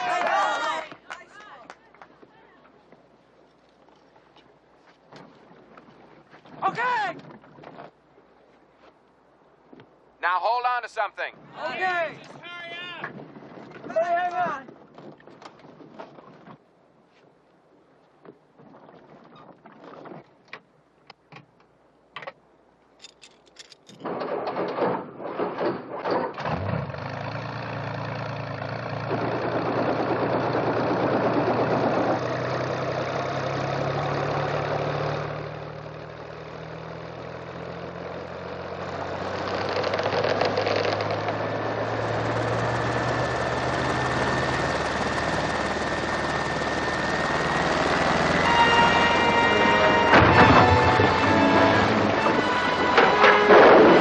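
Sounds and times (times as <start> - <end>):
helicopter engine starting: 39.5 - 48.9.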